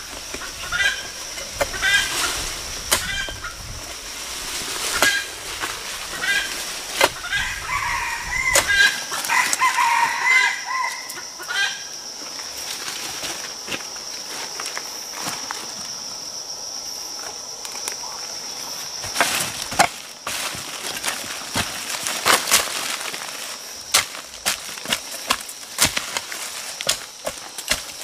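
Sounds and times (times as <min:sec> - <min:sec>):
hand hoe chopping soil: 0:02.8 - 0:03.4, 0:04.6 - 0:07.4, 0:19.0 - 0:28.0.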